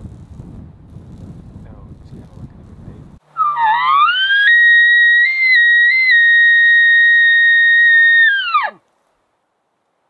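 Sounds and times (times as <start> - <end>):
elk bugle call whistle: 3.3 - 8.8.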